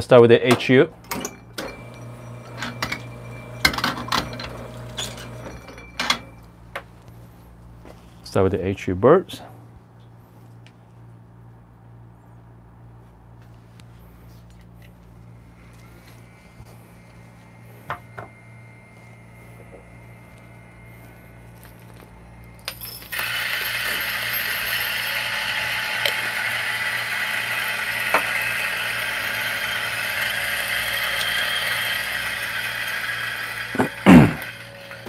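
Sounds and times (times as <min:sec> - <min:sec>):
coffee grinder whirring: 0:01.7 - 0:06.2, 0:15.6 - 0:35.0.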